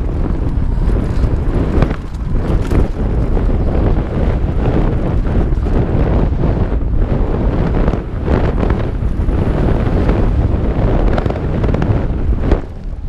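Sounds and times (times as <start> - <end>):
bike knocks and rattles: 0.0 - 7.0
low rumble: 0.0 - 13.0
wind buffeting microphone: 0.0 - 13.0.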